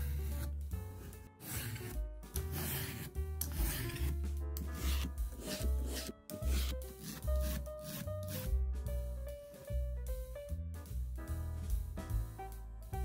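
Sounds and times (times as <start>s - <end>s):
background music: 0.0s - 13.0s
peeler scraping zucchini: 1.0s - 8.5s.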